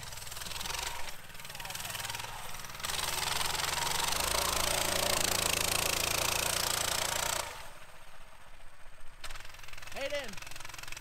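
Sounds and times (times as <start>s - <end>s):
small motorbike engine running hard: 0.0s - 11.0s.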